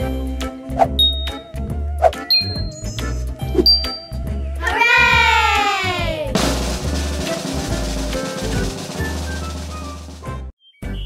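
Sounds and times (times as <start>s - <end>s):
playful children's music: 0.0s - 11.0s
plinking sound effects: 1.0s - 1.5s, 2.2s - 2.9s.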